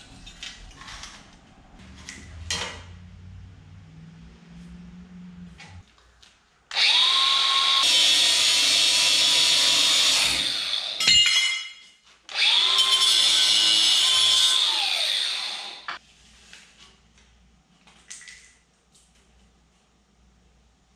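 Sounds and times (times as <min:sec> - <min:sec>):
angle grinder cutting steel: 0:06.7 - 0:11.4, 0:12.3 - 0:16.0.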